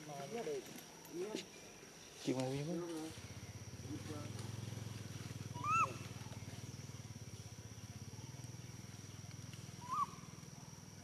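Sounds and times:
baby monkey coo calls: 5.4 - 7.0, 9.7 - 10.4.

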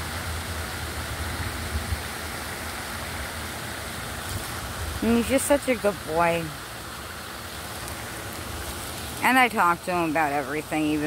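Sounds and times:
wind rumbling on microphone: 0.0 - 5.2
steady rushing outdoor noise: 0.0 - 11.0.

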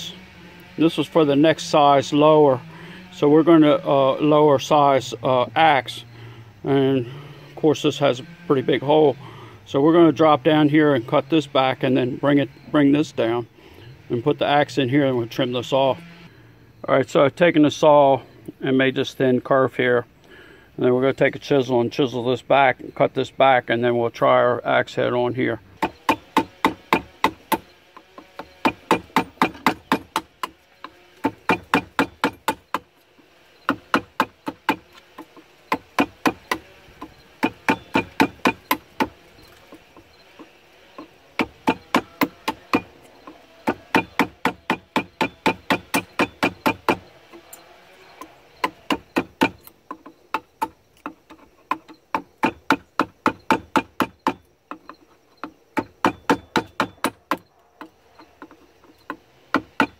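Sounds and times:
hammer striking wood chisel: 25.8 - 32.9, 33.6 - 47.5, 48.2 - 59.9.

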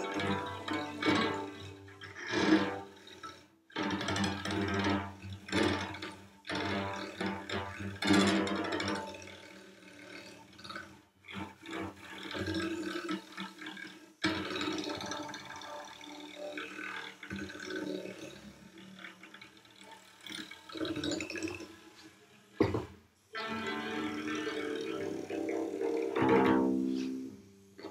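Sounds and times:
brush scratching cello strings: 0.0 - 2.9, 23.4 - 27.9.

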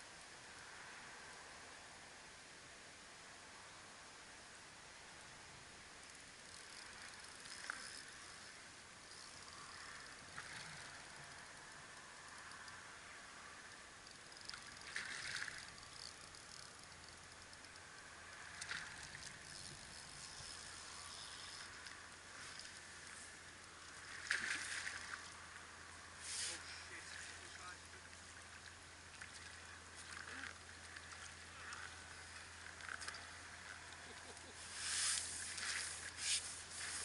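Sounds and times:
faint steady hiss: 0.0 - 37.0.

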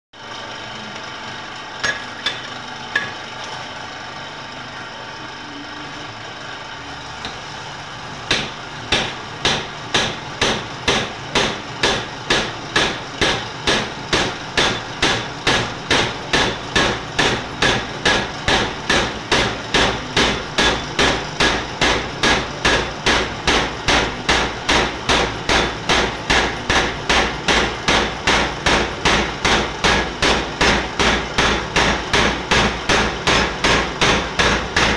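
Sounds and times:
power hammer striking hot steel: 1.8 - 3.2, 8.2 - 34.9
power hammer humming: 8.2 - 34.9.

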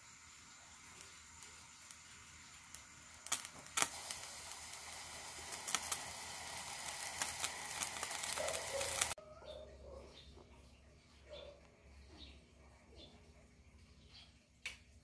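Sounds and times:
liquid sizzling in a pot: 0.0 - 9.2
sharp pops: 2.7 - 9.2.

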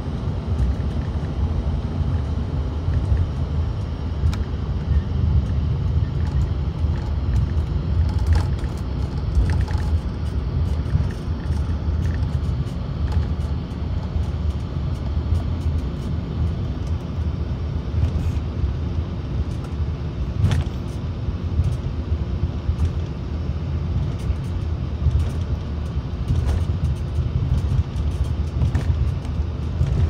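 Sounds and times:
jet engines rumbling: 0.0 - 30.0
light cabin rattles: 24.0 - 30.0.

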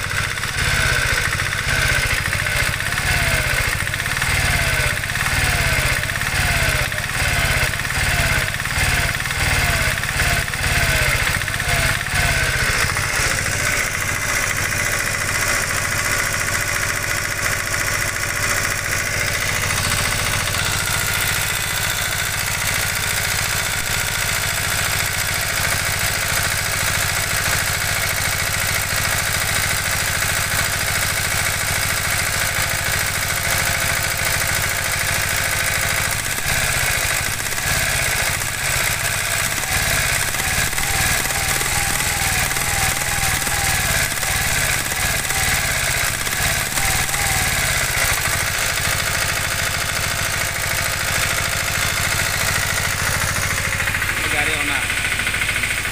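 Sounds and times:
small engine idling: 0.0 - 55.9.

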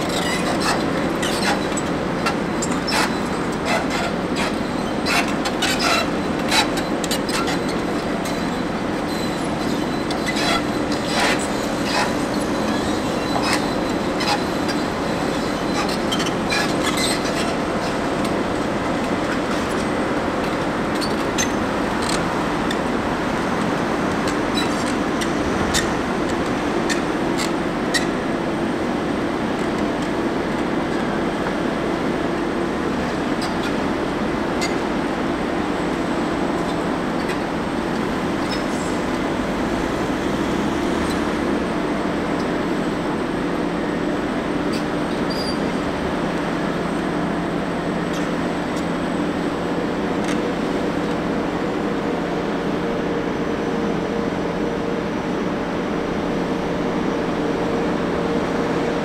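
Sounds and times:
hydraulic rig droning: 20.3 - 28.3.

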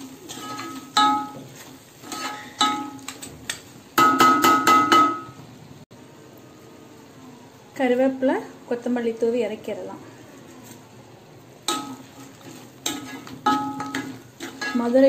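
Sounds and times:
metal ladle knocking on metal pan: 0.9 - 1.4, 4.0 - 5.4, 12.9 - 14.8.

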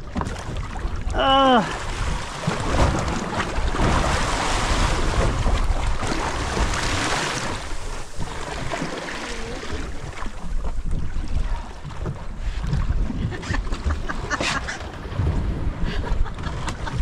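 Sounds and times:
sea water splashing against boat: 0.0 - 17.0
wind buffeting microphone: 9.8 - 17.0.

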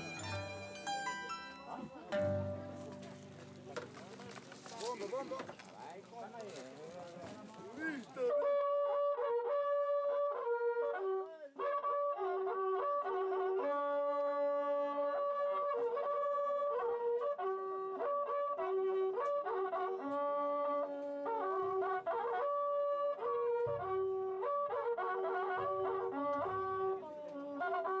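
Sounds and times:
horn trumpets playing long notes: 0.0 - 3.2.

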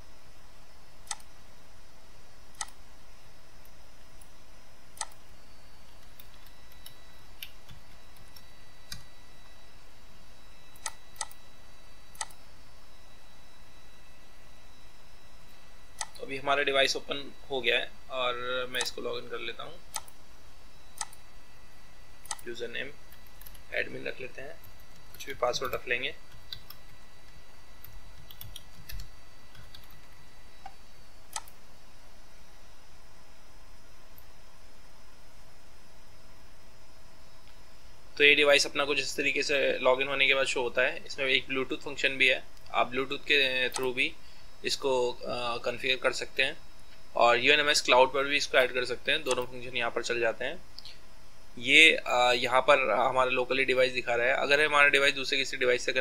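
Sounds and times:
faint high-pitched electronic tones: 0.0 - 56.0
faint steady hum: 0.0 - 56.0
computer mouse and key clicks: 1.0 - 1.3, 2.5 - 2.8, 5.0 - 5.2, 5.9 - 9.1, 10.7 - 11.4, 12.1 - 12.4, 16.0 - 16.2, 19.9 - 20.2, 20.9 - 21.2, 22.2 - 22.5, 23.1 - 23.7, 24.6 - 31.6, 43.7 - 43.9, 49.2 - 49.5
computer keyboard clicks: 27.8 - 30.0.

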